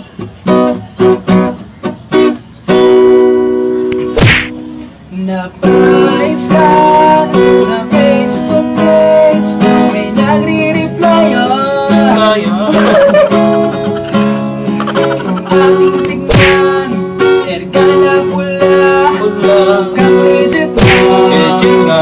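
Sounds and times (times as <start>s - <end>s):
acoustic guitar strummed: 0.0s - 22.0s
man singing: 5.1s - 14.2s, 14.9s - 22.0s.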